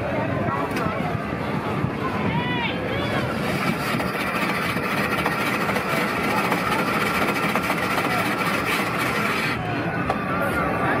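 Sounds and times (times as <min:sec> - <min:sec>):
ice shaver machine shaving ice: 0:03.4 - 0:09.6.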